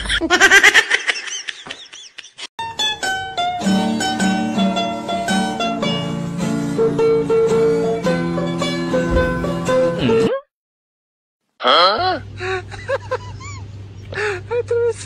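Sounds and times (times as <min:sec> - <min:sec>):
plucked string instrument music: 0:02.6 - 0:10.3.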